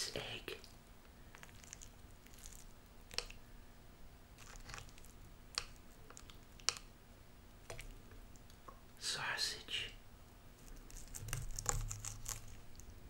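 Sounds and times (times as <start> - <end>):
utensils squishing and scraping egg: 1.1 - 3.4, 4.4 - 6.9, 10.6 - 12.9.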